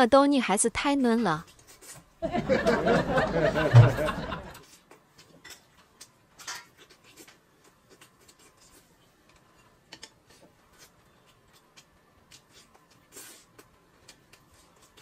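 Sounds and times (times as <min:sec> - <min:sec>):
chewing: 0:04.6 - 0:15.0.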